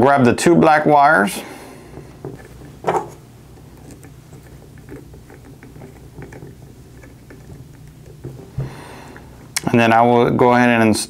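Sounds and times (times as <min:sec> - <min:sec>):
low steady hum: 0:00.0 - 0:11.0
fingers handling electrical wires: 0:01.9 - 0:09.8.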